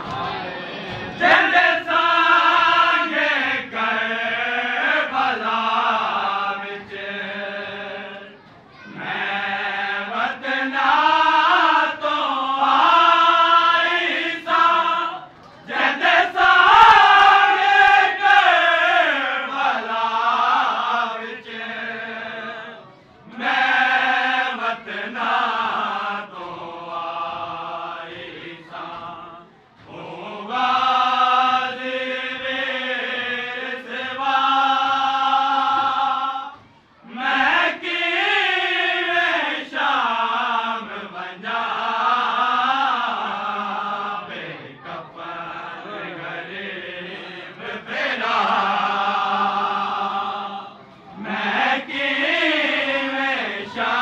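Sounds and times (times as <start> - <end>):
lead reciter singing into microphone: 0.0 - 54.0
men chanting a mourning lament: 0.3 - 54.0.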